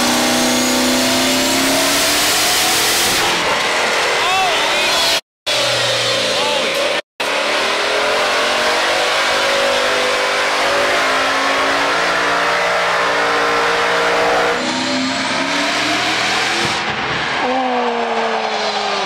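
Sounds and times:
diesel engine high-rev roar: 0.0s - 4.2s, 4.8s - 19.0s.

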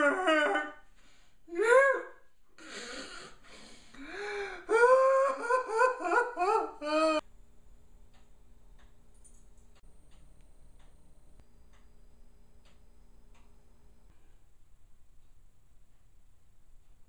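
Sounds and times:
man mock crying and sobbing: 0.0s - 0.8s, 4.0s - 7.2s
wheezing gasps: 2.6s - 4.7s.

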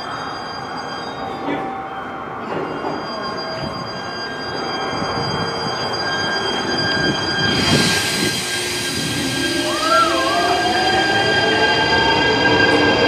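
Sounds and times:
electric train passing: 0.0s - 13.0s
hiss of train wheels: 7.0s - 11.2s.

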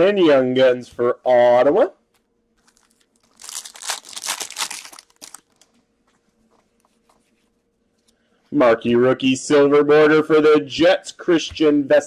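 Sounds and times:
foil wrapper tearing and crinkling: 2.6s - 5.7s.

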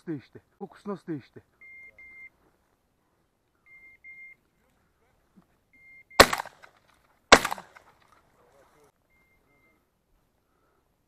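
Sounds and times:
shotgun shots: 6.2s - 7.9s.

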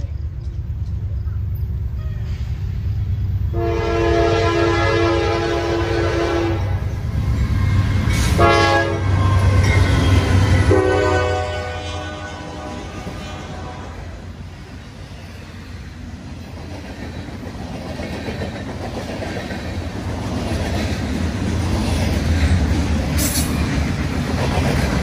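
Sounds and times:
locomotive low rumble: 0.0s - 5.7s
locomotive air horn blasts: 3.5s - 6.8s, 8.2s - 9.6s, 10.6s - 14.1s.

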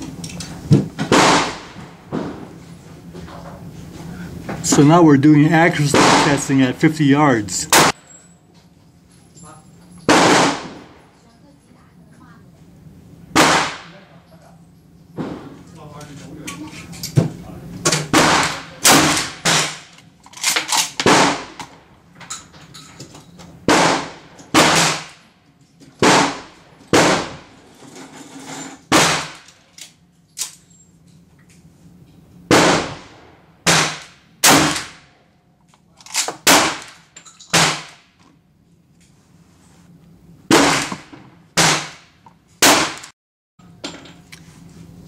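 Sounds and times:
gunshots with echo: 1.1s - 1.8s, 5.8s - 6.8s, 10.1s - 10.9s, 13.3s - 14.0s, 21.0s - 21.6s, 23.7s - 25.1s, 26.0s - 27.5s, 32.5s - 35.0s.

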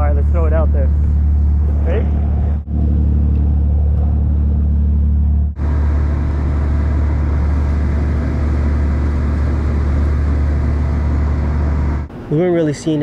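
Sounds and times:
boat engine low drone: 0.0s - 12.5s.

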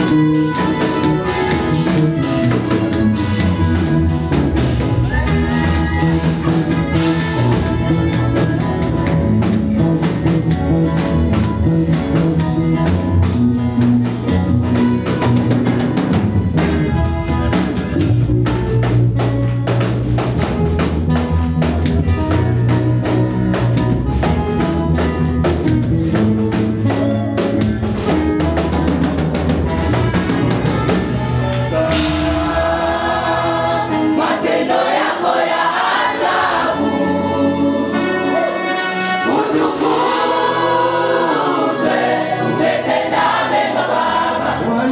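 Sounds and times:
bass line: 0.0s - 34.4s
drum kit beat: 0.0s - 44.9s
gospel band playing: 0.0s - 44.9s
choir singing: 31.6s - 44.9s.

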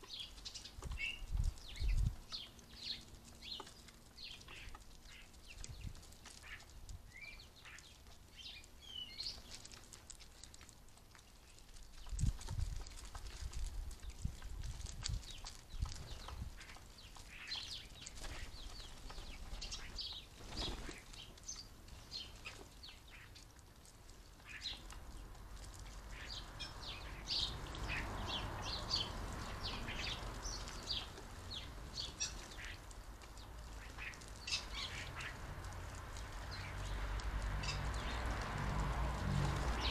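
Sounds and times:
birds calling: 15.2s - 23.5s, 24.4s - 38.3s.

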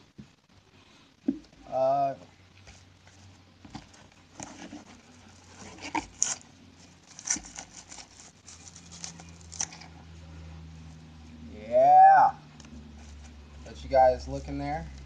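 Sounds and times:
faint low hum: 0.0s - 15.0s
packaging crinkling and tearing: 3.8s - 9.9s.

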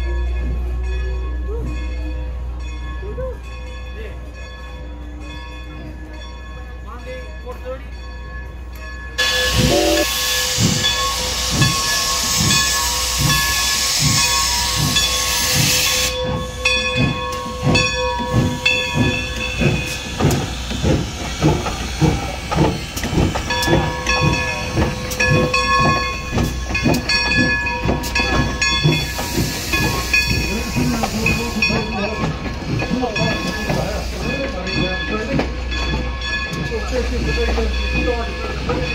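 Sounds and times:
steam hissing: 9.2s - 35.2s, 36.6s - 38.9s
steam locomotive exhaust chuffs: 9.2s - 38.9s.

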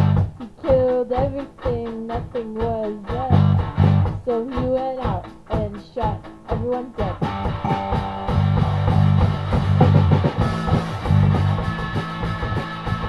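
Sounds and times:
rock band playing: 0.0s - 13.0s
gliding guitar lines: 7.2s - 12.0s.

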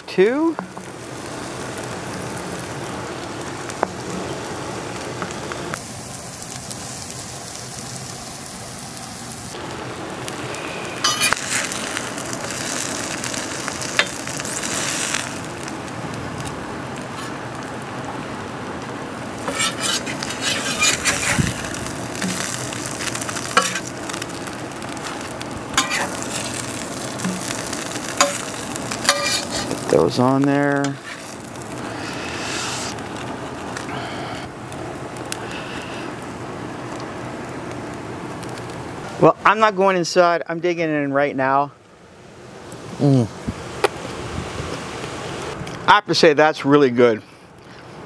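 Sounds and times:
burgers sizzling on griddle: 0.0s - 47.4s
metal spatula scraping steel: 11.0s - 11.6s, 19.4s - 21.4s, 25.8s - 26.5s, 29.1s - 29.7s.

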